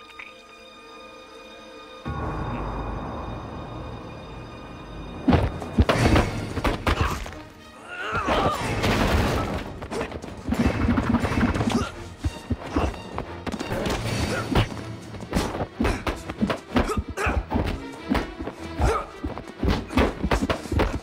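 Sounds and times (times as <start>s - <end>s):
film score music: 0.0s - 21.0s.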